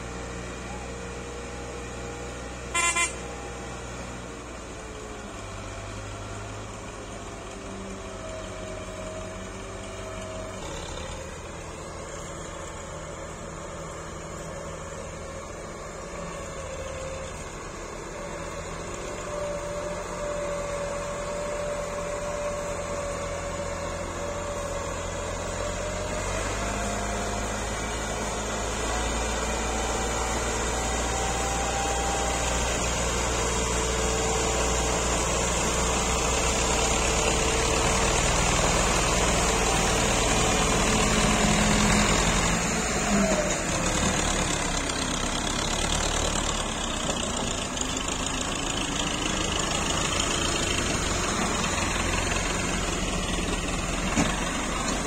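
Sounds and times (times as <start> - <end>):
diesel tractor engines running: 0.0 - 55.0.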